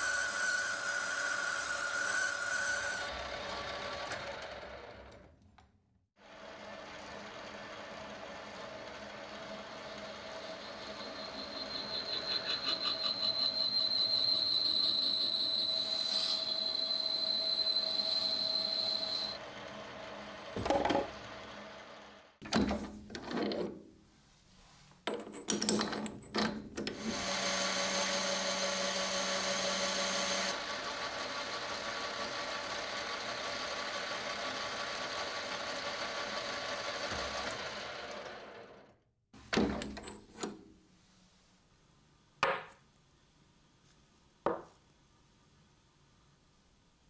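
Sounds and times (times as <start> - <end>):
metal lathe cutting brass: 0.0 - 4.5, 8.5 - 19.4.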